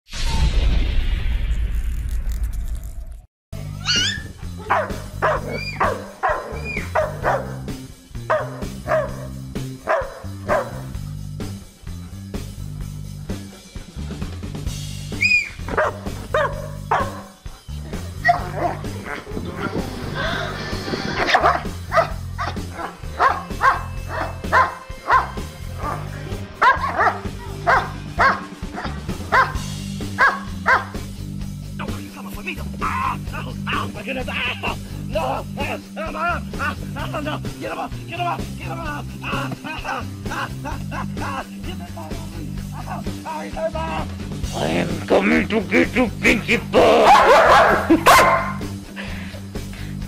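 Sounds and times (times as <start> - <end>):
background music with low notes: 3.6 - 50.0
dog barking: 3.9 - 7.7, 8.3 - 10.9, 15.7 - 17.4, 18.2 - 18.8, 21.3 - 26.0, 26.6 - 29.6, 30.2 - 31.0, 47.0 - 48.6.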